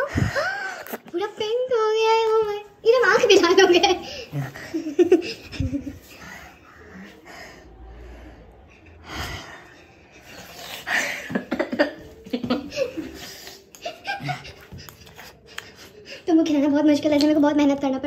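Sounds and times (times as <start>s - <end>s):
person chuckling: 3.7s - 6.1s, 10.4s - 15.4s
breathing: 4.0s - 11.3s.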